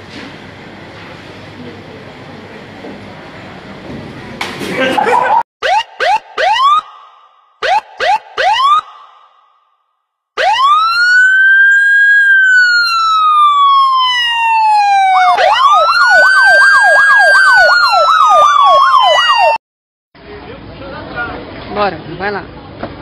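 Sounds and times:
voices imitating siren wail: 0:05.0 - 0:09.2, 0:10.4 - 0:19.6.

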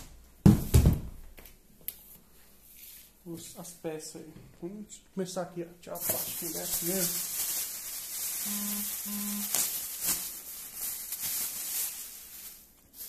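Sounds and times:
plastic wrapping crinkling: 0:05.9 - 0:13.0
man humming: 0:08.5 - 0:09.5.

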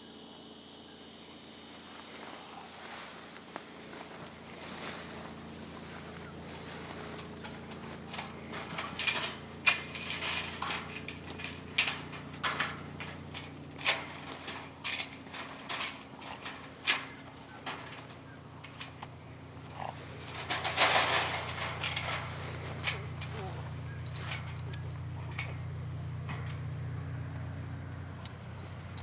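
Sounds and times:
shuffle of movement: 0:01.8 - 0:29.0
metal gate clinking and rattling: 0:06.5 - 0:29.0.

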